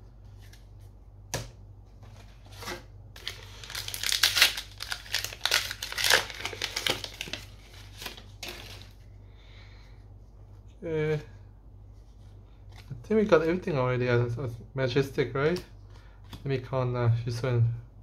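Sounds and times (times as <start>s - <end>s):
foil wrapper crinkling: 3.2s - 9.0s.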